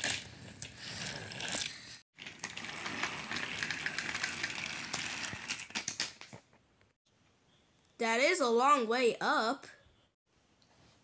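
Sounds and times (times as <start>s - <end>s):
toy trains rattling on plastic track: 2.2s - 5.9s.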